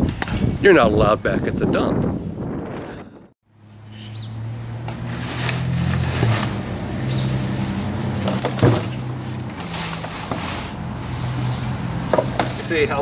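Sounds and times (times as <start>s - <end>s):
engine hum: 3.5s - 13.0s
shovel scraping wet debris: 5.1s - 12.7s.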